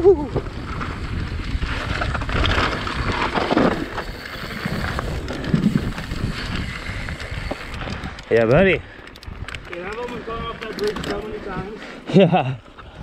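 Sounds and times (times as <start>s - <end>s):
wind buffeting microphone: 0.0s - 11.8s
bike tyre rumble on dirt: 0.0s - 11.9s.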